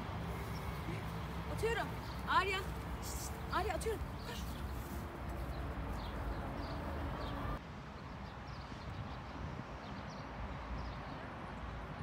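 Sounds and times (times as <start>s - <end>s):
small birds chirping: 0.0s - 7.6s.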